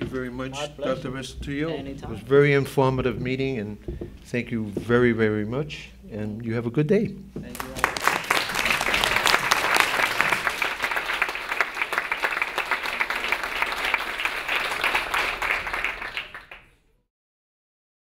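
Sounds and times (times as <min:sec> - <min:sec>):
audience applauding: 0:07.5 - 0:16.8.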